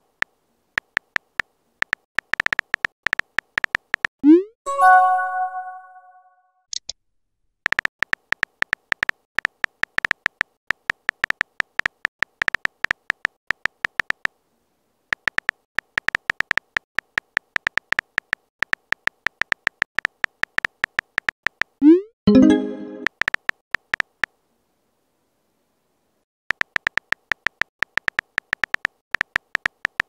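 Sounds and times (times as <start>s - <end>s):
keyboard tap clicks: 26.5s - 30.0s.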